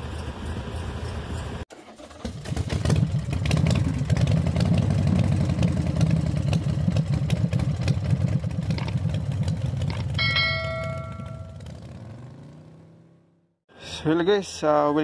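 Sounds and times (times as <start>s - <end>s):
notification bell chime: 10.2s - 11.7s.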